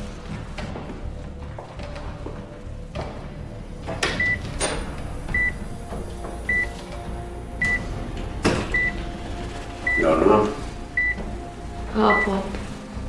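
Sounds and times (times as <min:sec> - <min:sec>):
patient monitor beeping: 0:04.2 - 0:04.6, 0:05.3 - 0:05.7, 0:06.5 - 0:06.8, 0:07.6 - 0:08.0, 0:08.7 - 0:09.1, 0:09.8 - 0:12.5.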